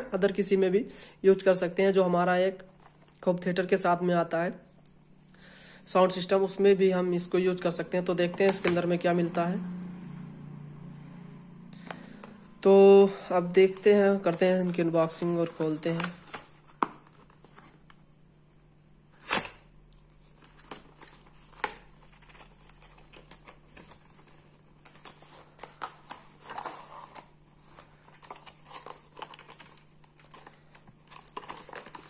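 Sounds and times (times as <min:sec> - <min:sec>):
paper crinkling: 0:19.3 - 0:32.0.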